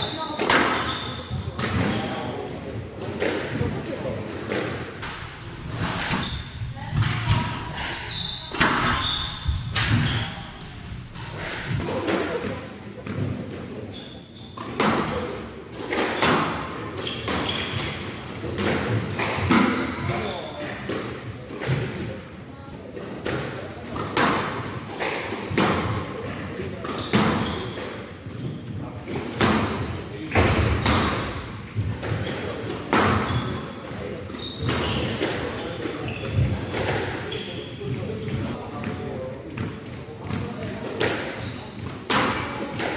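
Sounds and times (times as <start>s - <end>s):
sneakers squeaking on court floor: 0.0s - 3.3s, 5.7s - 11.8s, 13.0s - 15.2s, 16.2s - 18.7s, 25.5s - 28.8s, 29.4s - 42.9s
squash ball hitting racquets and walls: 0.0s - 42.9s
squash ball hits: 14.6s - 22.0s, 23.0s - 26.1s, 29.1s - 34.0s.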